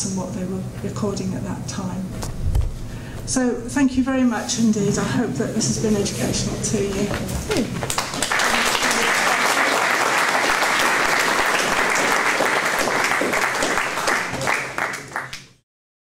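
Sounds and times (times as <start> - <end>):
audience applauding: 7.6 - 15.6.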